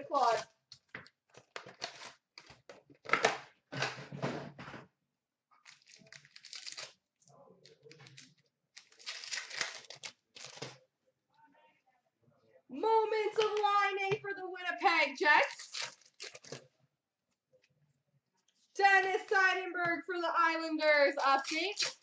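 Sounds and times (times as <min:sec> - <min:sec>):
card pack wrappers tearing and crinkling: 0:01.5 - 0:02.2, 0:05.6 - 0:07.0, 0:07.7 - 0:10.8, 0:15.4 - 0:16.6, 0:21.4 - 0:22.0.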